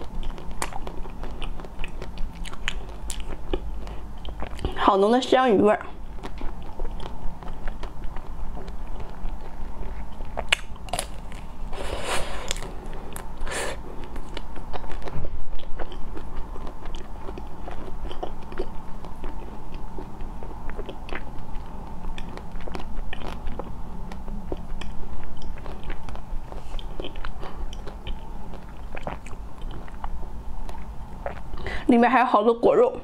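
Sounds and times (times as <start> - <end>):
chewing with small clicks: 0.0 - 4.8, 6.2 - 11.5, 14.0 - 31.6
crunching bites: 6.2 - 11.5.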